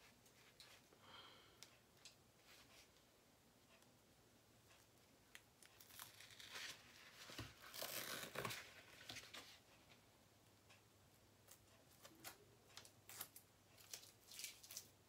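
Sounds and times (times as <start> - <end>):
plastic crinkling and rustling: 12.2 - 14.9.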